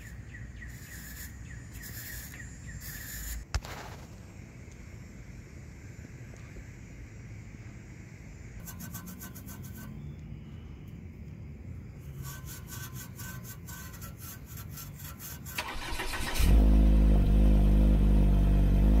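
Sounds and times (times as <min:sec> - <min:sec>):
car engine cranking and idling: 0:15.6 - 0:19.0.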